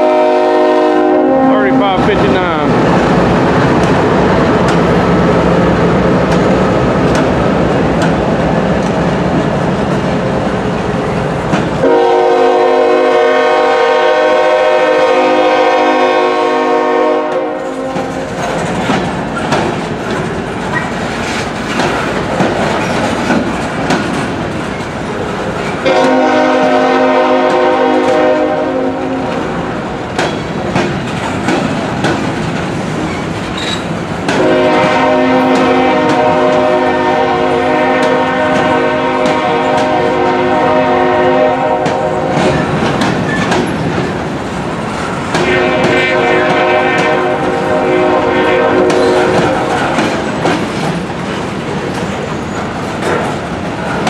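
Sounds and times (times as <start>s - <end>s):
train horn blast: 0.0s - 2.6s, 11.8s - 18.4s, 25.8s - 29.7s, 34.3s - 42.5s, 45.3s - 50.1s
diesel locomotives rumbling: 0.0s - 54.0s
freight cars rattling on rails: 1.3s - 13.2s, 17.4s - 54.0s.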